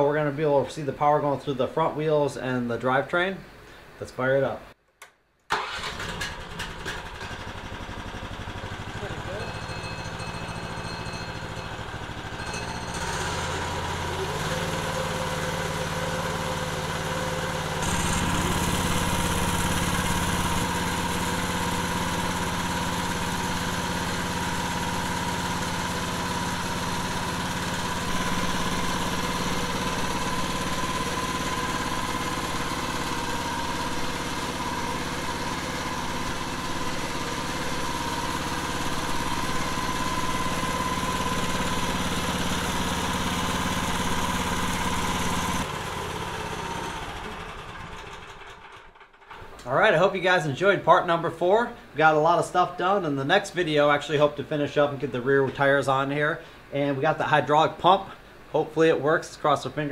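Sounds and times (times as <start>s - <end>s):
small engine running: 5.6s - 49.4s.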